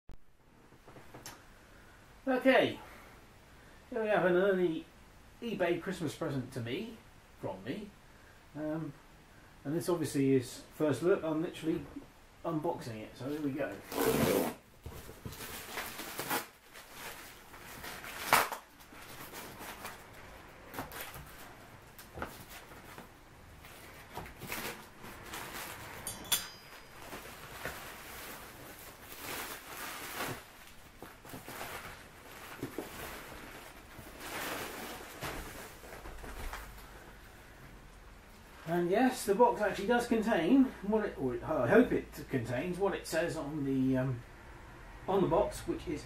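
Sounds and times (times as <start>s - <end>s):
plastic wrap and tape ripping: 13.7s - 36.7s.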